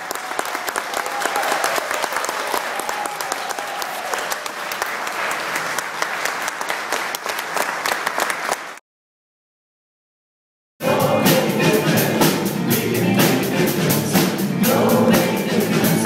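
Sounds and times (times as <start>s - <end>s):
congregation applauding: 0.0s - 8.8s.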